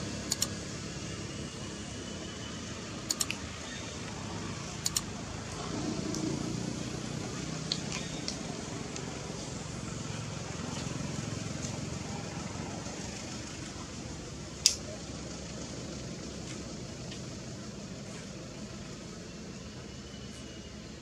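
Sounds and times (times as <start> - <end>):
outdoor rumble and hiss: 0.0 - 21.0
sharp click: 0.2 - 0.5, 3.1 - 3.4, 4.8 - 5.1
light clicks: 0.3 - 0.5.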